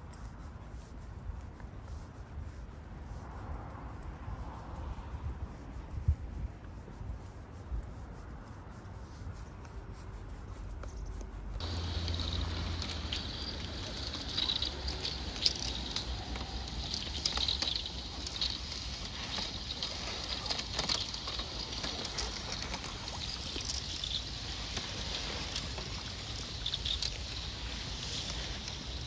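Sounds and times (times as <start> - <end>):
ice cracking: 11.6 - 29.0.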